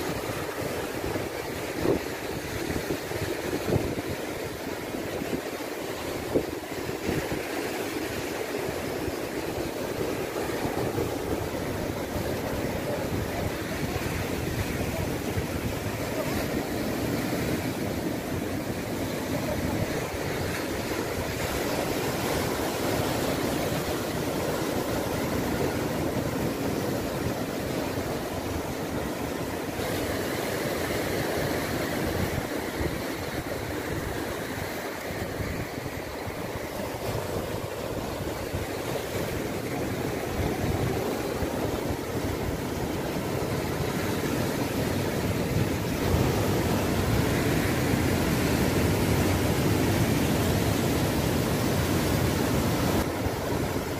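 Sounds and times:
sea surf breaking on rocks: 0.0 - 53.9.

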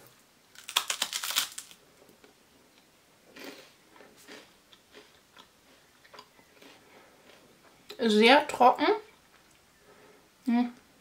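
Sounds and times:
crisp wafer bar crunching: 0.5 - 1.8
chewing: 3.4 - 7.5.

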